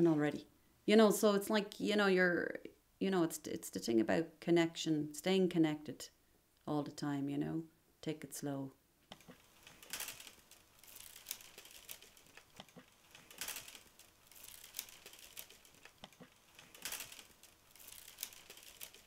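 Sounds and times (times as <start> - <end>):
rustling and crinkling: 9.1 - 19.0
small clicks: 9.1 - 19.0.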